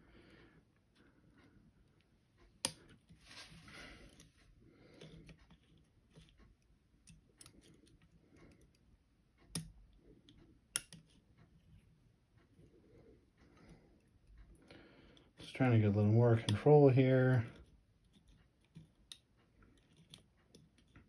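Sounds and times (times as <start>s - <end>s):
scratchy rustle: 3.2s - 3.8s
lock picks clicking and scraping: 4.9s - 12.0s, 17.4s - 21.0s.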